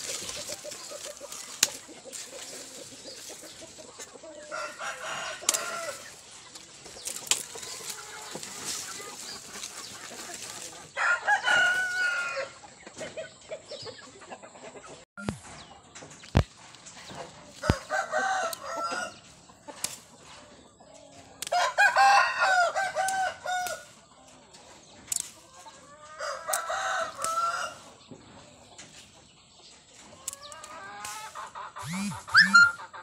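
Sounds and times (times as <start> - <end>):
rooster crowing: 4.5 - 6.1, 11.0 - 12.6, 17.6 - 19.2, 21.5 - 23.9, 26.2 - 27.8
sharp clicks: 31.8 - 32.6.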